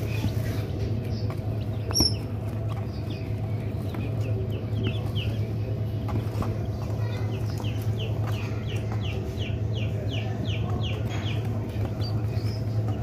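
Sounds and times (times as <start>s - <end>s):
chicks peeping: 0.0s - 13.0s
steady low hum: 0.0s - 13.0s.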